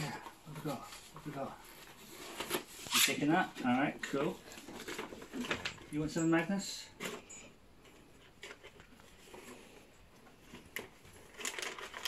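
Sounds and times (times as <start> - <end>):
rustling in cardboard box: 0.0 - 5.9
plastic packaging crinkling: 8.2 - 12.0.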